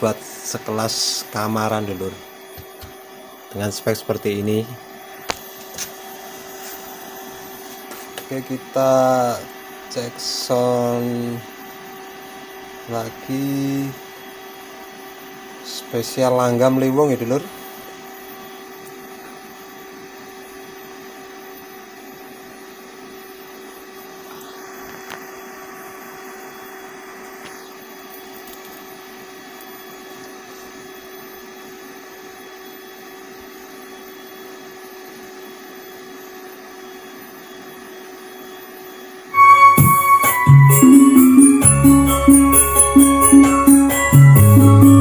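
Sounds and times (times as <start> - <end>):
small cooling fan whirring: 0.0 - 39.4
loud music through amplifier: 39.4 - 45.0.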